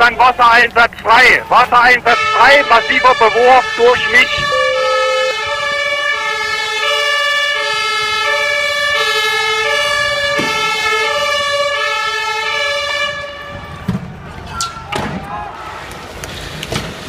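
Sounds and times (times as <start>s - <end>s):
two-tone police siren: 2.0s - 13.9s.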